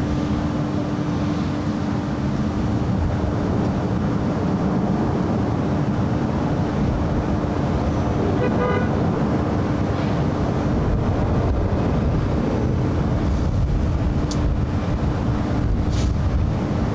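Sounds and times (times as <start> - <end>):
wind buffeting microphone: 0.0 - 16.9
short horn toot: 8.2 - 9.0.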